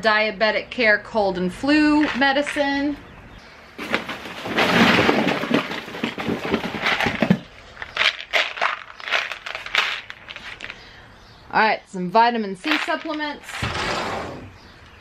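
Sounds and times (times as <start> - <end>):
items knocking together: 3.8 - 10.8, 12.6 - 13.7
packaging rustling: 3.8 - 10.8.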